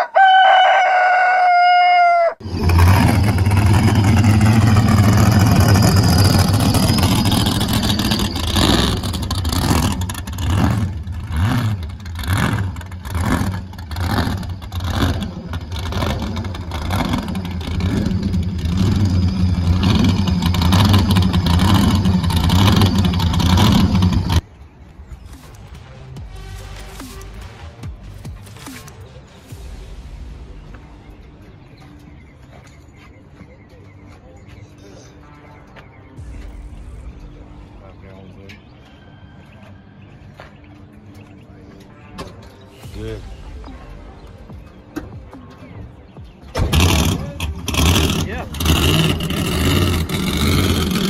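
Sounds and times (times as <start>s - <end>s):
rooster crowing: 0.0s - 2.4s
drag car engine revving: 2.4s - 24.4s, 46.5s - 51.0s.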